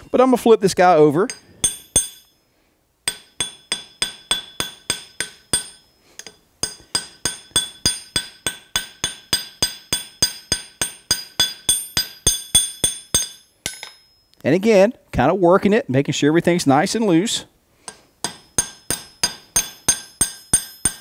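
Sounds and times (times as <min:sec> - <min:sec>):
hammer tapping rivet on anvil: 0:01.3 - 0:02.3, 0:03.0 - 0:14.2, 0:17.9 - 0:21.0.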